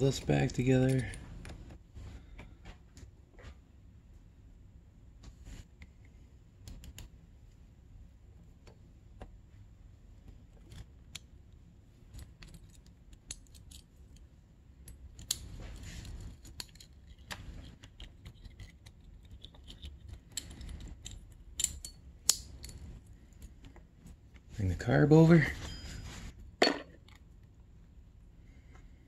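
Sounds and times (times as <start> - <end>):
hands handling parts clicking: 0.2 - 1.7, 10.2 - 24.5.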